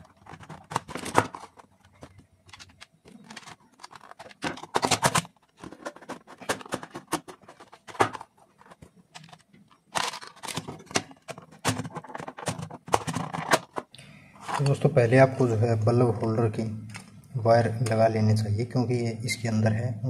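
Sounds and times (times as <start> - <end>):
plastic parts clicking and scraping: 0.0 - 14.9.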